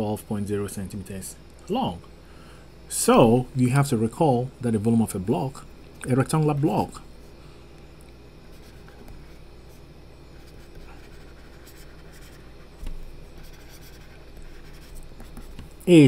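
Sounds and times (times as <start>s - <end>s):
faint low hum: 0.0s - 16.0s
stylus scratching on tablet: 8.4s - 15.7s.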